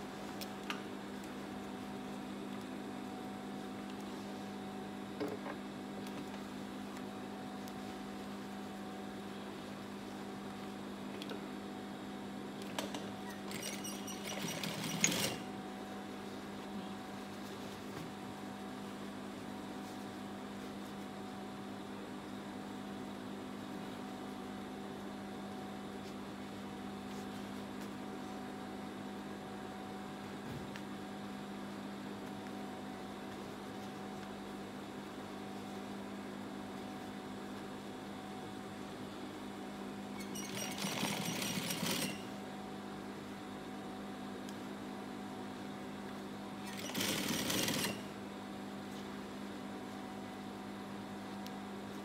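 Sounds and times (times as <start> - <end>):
sewing machine stitching: 13.3 - 15.5, 40.2 - 42.3, 46.6 - 48.1.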